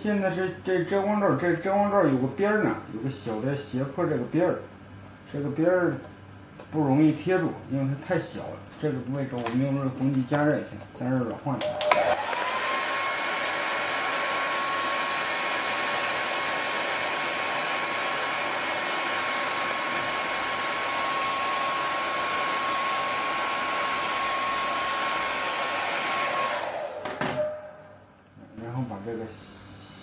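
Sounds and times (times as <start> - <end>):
hair dryer blowing: 11.6 - 28.0.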